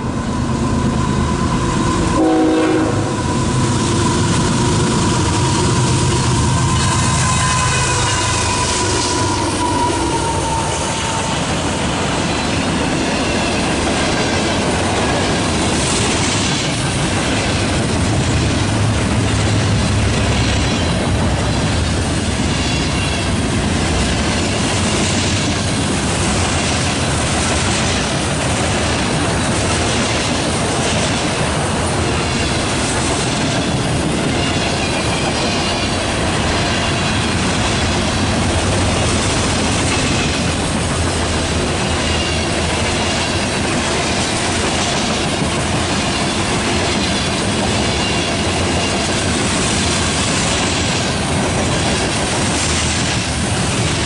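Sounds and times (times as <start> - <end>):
freight train wheels rumbling: 0.0 - 54.0
high wheel squeal: 3.2 - 13.8, 41.8 - 43.4
clickety-clack over rail joints: 4.0 - 54.0.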